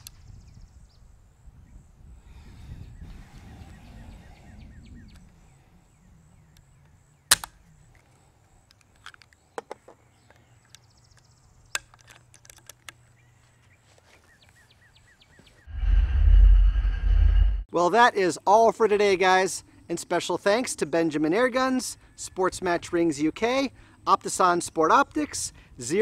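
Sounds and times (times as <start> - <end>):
air rifle mechanical clicks: 7.3 - 8.1, 11.8 - 13.1
low rustle: 15.7 - 17.7.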